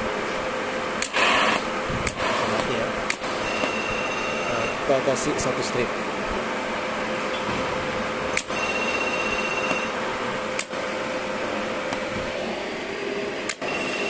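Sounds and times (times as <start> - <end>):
welder cooling fan hum: 0.0 - 14.0.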